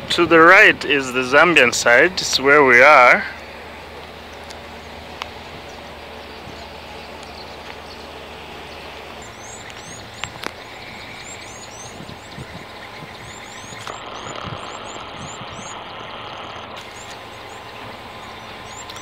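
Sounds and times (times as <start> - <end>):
low hum: 0.0 - 19.0
bird chirping: 0.8 - 19.0
sharp clicks: 9.4 - 17.8, 18.5 - 19.0.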